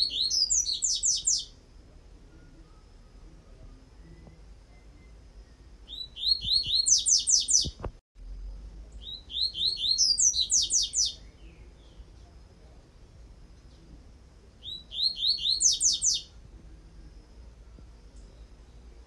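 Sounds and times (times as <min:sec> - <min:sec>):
bird singing high notes: 0:05.9 - 0:07.7, 0:14.6 - 0:16.3.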